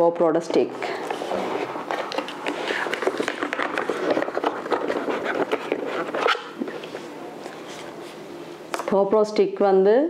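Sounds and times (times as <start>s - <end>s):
plastic clicking and scraping: 1.0s - 7.0s.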